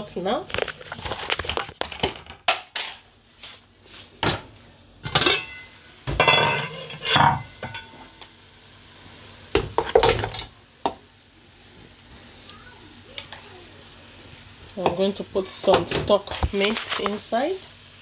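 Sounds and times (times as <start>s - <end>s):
ladle scraping metal pot: 6.4s - 7.8s.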